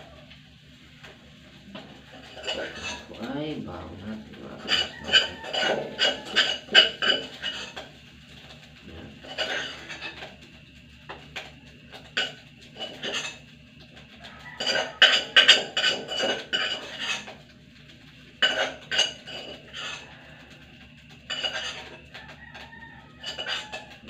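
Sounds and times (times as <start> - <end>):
metal spoon scraping steel bowl: 2.2 - 3.1, 4.6 - 7.8, 9.2 - 10.2, 12.2 - 13.4, 14.6 - 17.3, 18.4 - 20.1, 21.3 - 22.0, 23.2 - 24.0
bowl ringing: 4.6 - 7.2.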